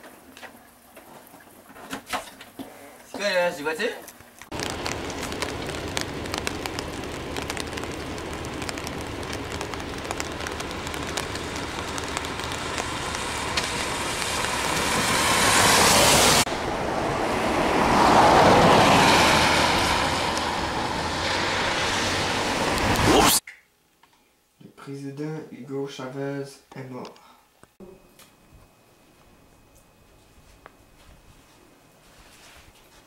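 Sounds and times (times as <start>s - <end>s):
traffic hissing on wet road: 4.5s - 23.4s.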